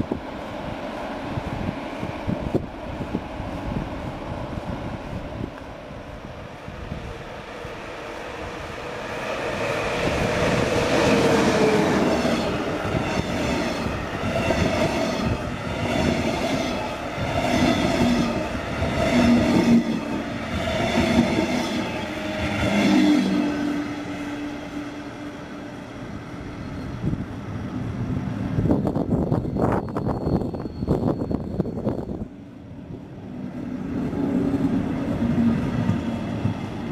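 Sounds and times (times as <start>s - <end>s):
train wheels rattling over rails: 8.3s - 25.2s.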